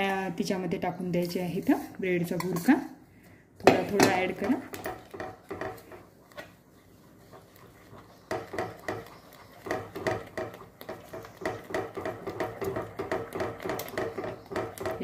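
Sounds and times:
spatula stirring thick food: 3.6 - 15.0.

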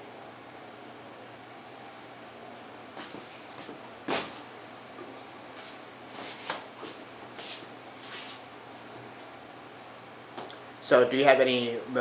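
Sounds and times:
room hiss: 5.5 - 8.7.

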